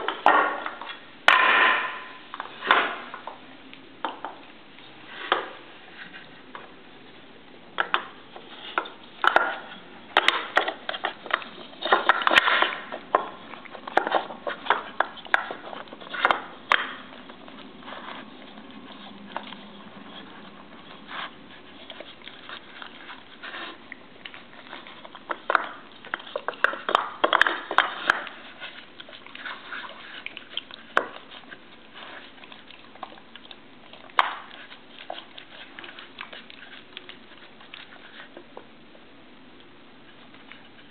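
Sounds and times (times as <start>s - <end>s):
dog sniffing: 8.2s - 38.6s.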